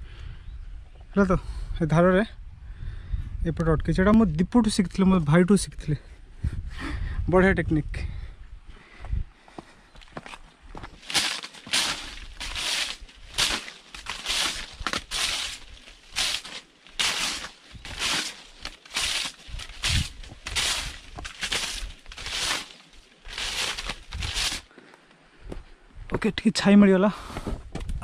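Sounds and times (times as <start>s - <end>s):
branch swishing over rock: 11.0s - 24.7s
machete scraping on rock: 11.0s - 24.7s.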